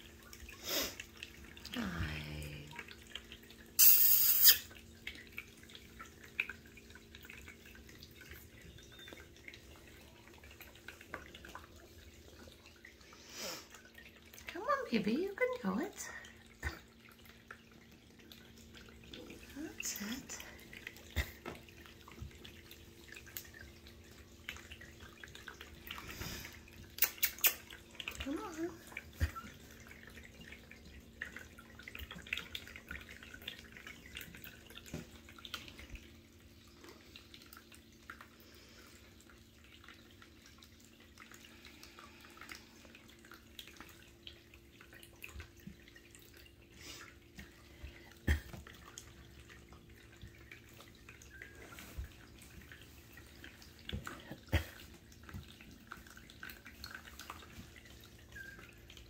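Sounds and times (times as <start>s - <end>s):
faint steady hum: 0.0s - 59.0s.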